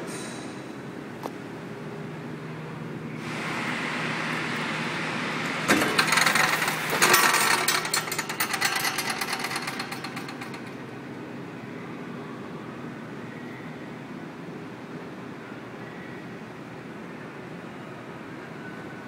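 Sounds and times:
fast clattering rattle: 0:05.7 - 0:10.9.

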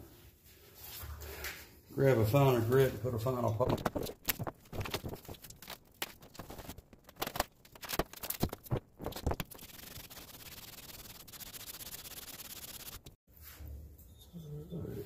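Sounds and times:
metal scraping on wet sandpaper: 0:09.0 - 0:13.1.

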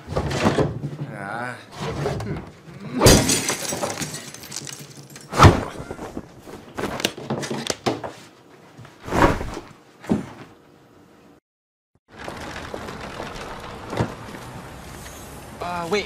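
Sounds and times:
cloth rustling: 0:05.6 - 0:07.1.

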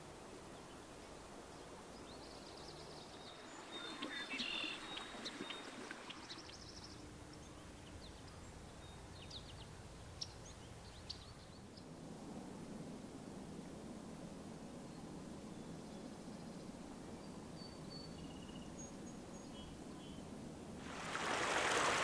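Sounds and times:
steady outdoor hiss: 0:00.0 - 0:22.0
small songbirds calling: 0:01.5 - 0:11.9, 0:15.5 - 0:20.3.

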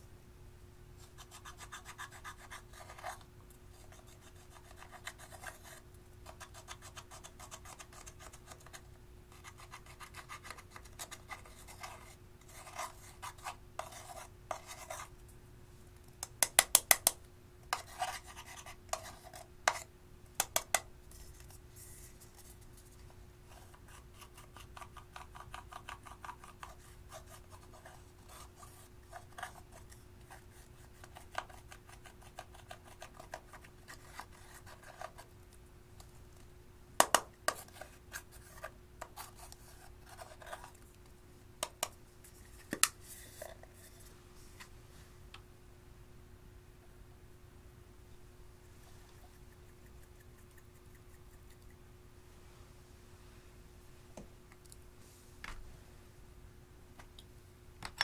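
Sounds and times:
metal spatula scraping eyeshadow: 0:09.4 - 0:15.1, 0:17.7 - 0:19.9.

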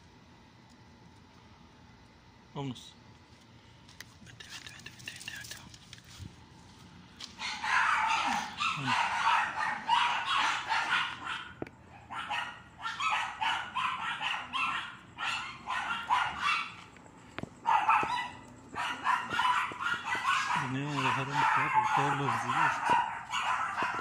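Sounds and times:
dog barking high-pitched: 0:07.4 - 0:16.9, 0:17.6 - 0:24.0.

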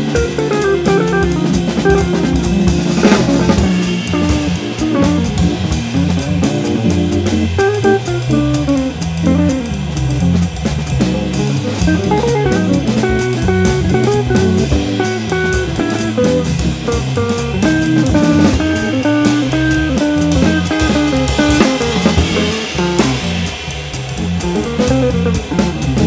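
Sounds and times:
drum kit cymbals: 0:00.0 - 0:26.0
organ chords: 0:00.0 - 0:26.0
electric guitar single notes: 0:11.6 - 0:23.3.

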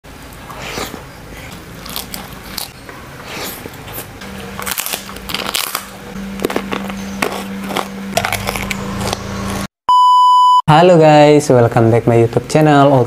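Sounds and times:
chewing with crisp crunches: 0:00.3 - 0:09.7.

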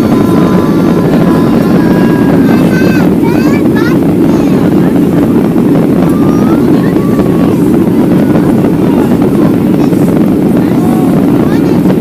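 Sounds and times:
jet engine roar: 0:00.0 - 0:12.0
rushing air: 0:00.0 - 0:12.0.

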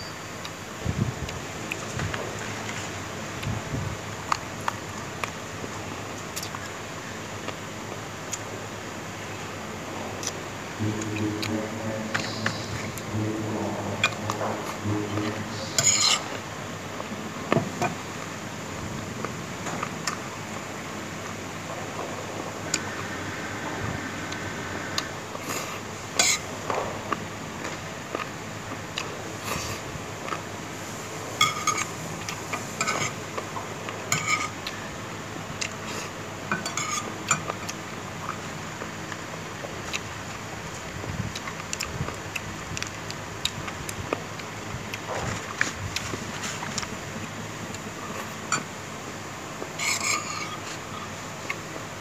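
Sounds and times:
person chewing: 0:10.2 - 0:10.4, 0:35.6 - 0:36.2, 0:37.4 - 0:46.9
spoon scraping and clinking on plate: 0:15.7 - 0:16.3, 0:49.8 - 0:51.0
utensils clinking on a plate: 0:15.7 - 0:16.4, 0:31.4 - 0:31.9, 0:34.1 - 0:34.6, 0:36.5 - 0:37.6, 0:49.8 - 0:51.1.

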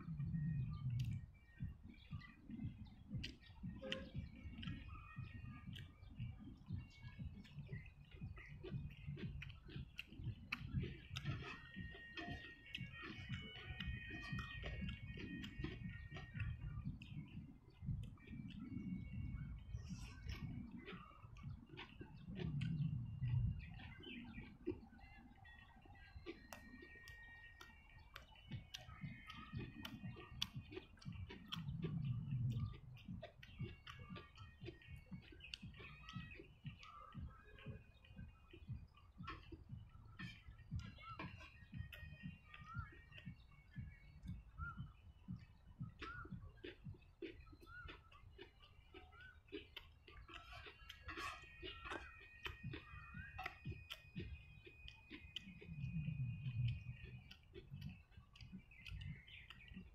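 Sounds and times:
birds calling: 0:00.0 - 0:59.9
chewing with smacking clicks: 0:00.0 - 0:59.9
wet mouth clicks and smacks: 0:26.2 - 0:37.0, 0:45.4 - 0:59.9.

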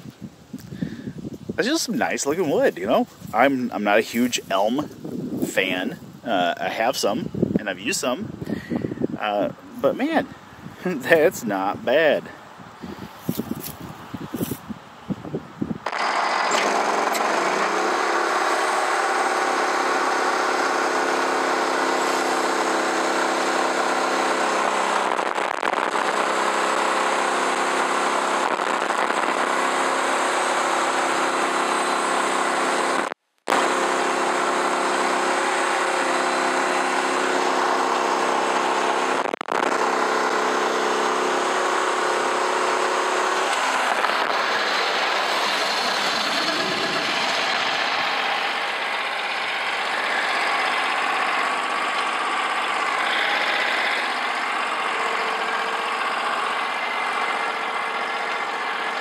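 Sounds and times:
bandsaw mill sawing log: 0:15.9 - 0:59.0.

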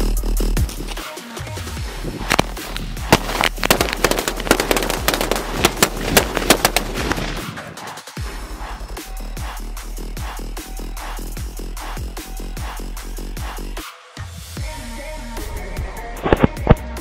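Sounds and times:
firecracker crackling: 0:00.5 - 0:07.7
firecrackers banging: 0:01.9 - 0:07.7.

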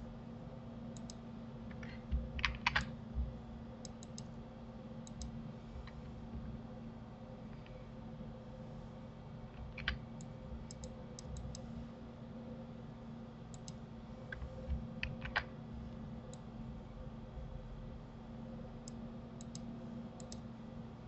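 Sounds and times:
low steady hum: 0:00.0 - 0:21.0
mouse and keyboard clicks: 0:01.0 - 0:02.9, 0:09.6 - 0:11.6, 0:13.5 - 0:15.5.

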